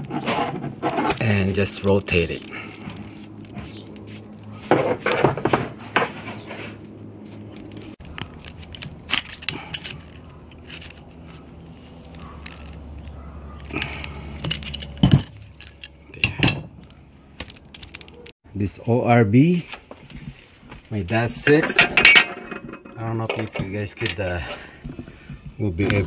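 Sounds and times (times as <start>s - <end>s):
metal fittings and tools clinking: 0.9s - 4.0s, 13.8s - 16.6s, 21.4s - 24.5s.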